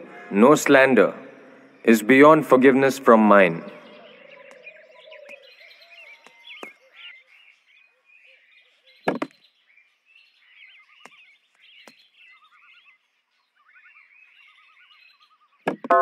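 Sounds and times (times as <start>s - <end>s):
small birds chirping and trilling: 0.0s - 16.0s
sharp knocks: 9.1s - 9.3s, 15.7s - 15.9s.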